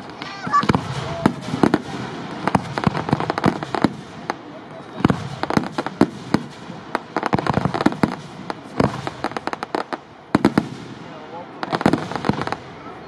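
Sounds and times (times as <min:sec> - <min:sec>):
fireworks bangs and pops: 0:00.0 - 0:13.0.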